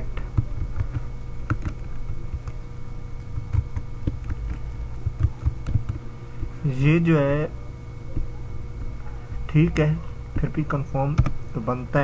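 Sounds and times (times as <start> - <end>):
low electrical hum: 0.0 - 12.0
keyboard keystroke clicks: 0.3 - 2.6, 3.2 - 6.0, 11.1 - 11.4.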